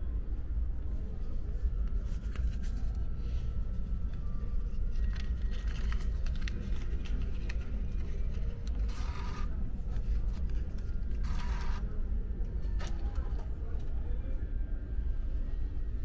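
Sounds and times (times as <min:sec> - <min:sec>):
banknotes rustling: 0:01.9 - 0:11.9
bill acceptor clicks and whirr: 0:11.2 - 0:11.8.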